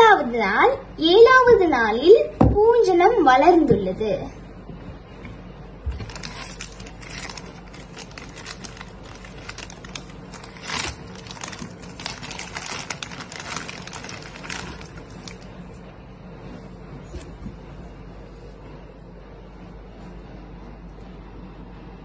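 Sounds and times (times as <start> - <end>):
plastic bag crinkling: 5.9 - 15.6.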